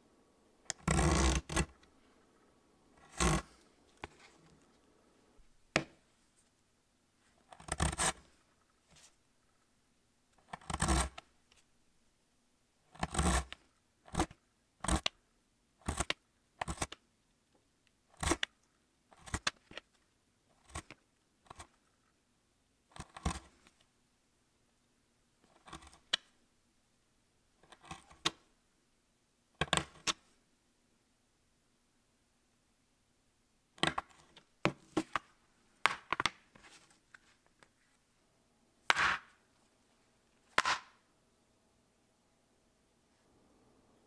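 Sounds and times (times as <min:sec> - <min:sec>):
blade cutting leather: 0:00.8 - 0:01.7, 0:03.0 - 0:03.5, 0:07.6 - 0:08.2, 0:10.6 - 0:11.2, 0:13.0 - 0:15.1.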